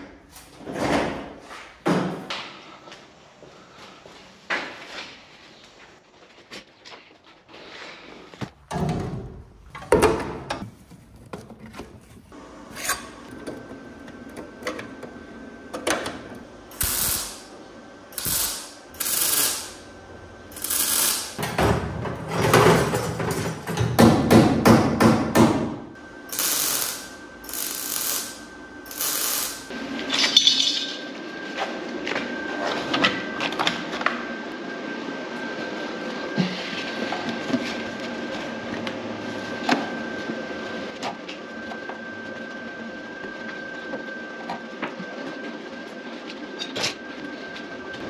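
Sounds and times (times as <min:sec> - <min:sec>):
sharp bursts of metalwork noise: 0:16.7 - 0:17.5, 0:18.1 - 0:19.9, 0:20.5 - 0:21.4, 0:26.3 - 0:29.7.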